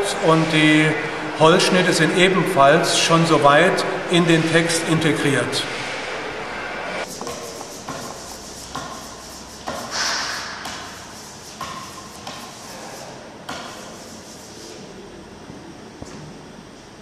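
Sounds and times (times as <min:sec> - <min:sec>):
hissing scrape: 0:05.6 - 0:13.2
knocks and scrapes at a table: 0:07.1 - 0:14.6.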